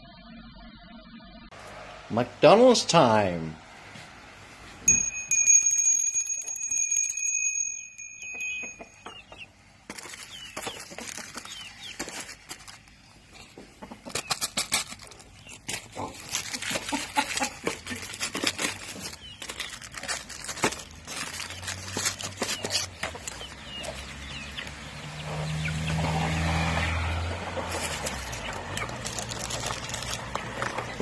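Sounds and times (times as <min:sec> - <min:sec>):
chickens pecking and scratching: 0:08.4 - 0:31.0
chicks peeping: 0:09.0 - 0:20.6, 0:21.2 - 0:26.5, 0:27.6 - 0:31.0.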